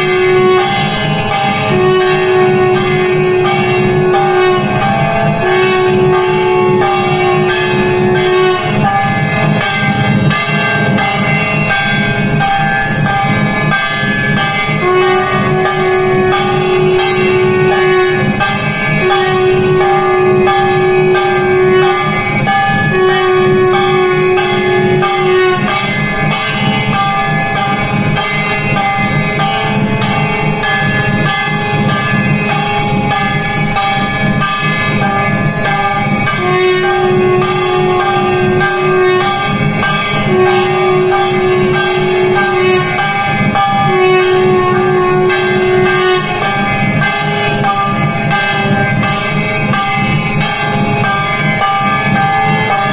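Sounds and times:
long held note: 0.0 - 9.8, 14.7 - 26.0, 35.6 - 48.0
temple bells ringing: 0.0 - 52.9.

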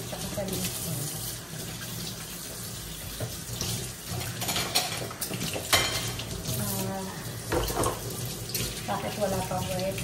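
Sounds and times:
dishware knocks: 7.5 - 8.0
tap running into steel sink: 7.5 - 8.7.

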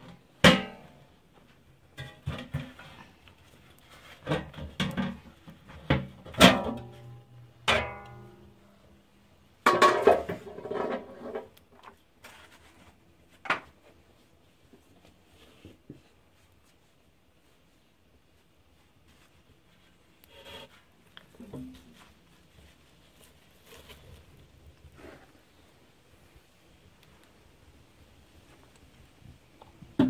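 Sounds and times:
metal pot clanking: 7.7 - 8.4.

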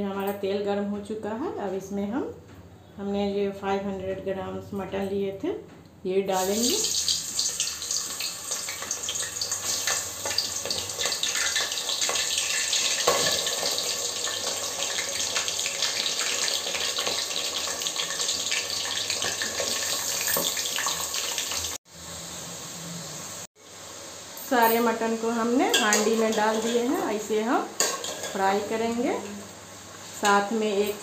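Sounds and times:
meat sizzling in hot oil: 6.4 - 28.7.

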